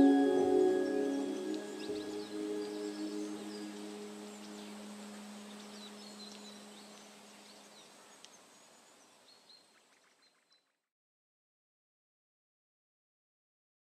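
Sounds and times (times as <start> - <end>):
ambient music note: 0.0 - 6.8
small birds chirping: 0.0 - 10.7.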